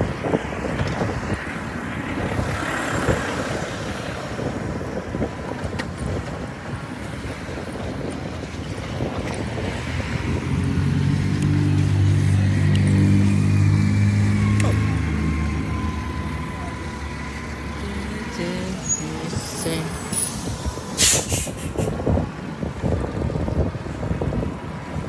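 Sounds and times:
cars passing on wet road: 0.0s - 25.0s
bus engine running: 2.0s - 25.0s.

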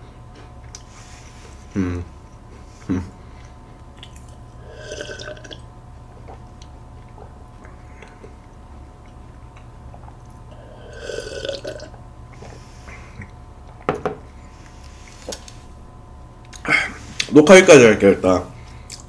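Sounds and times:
person gulping and swallowing: 4.0s - 6.5s, 9.9s - 12.0s.

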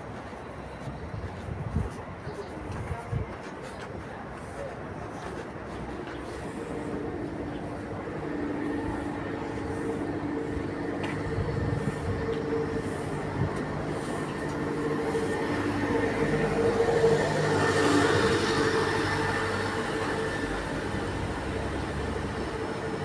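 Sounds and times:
traffic hum: 0.0s - 23.0s
bus driving past: 4.6s - 23.0s.

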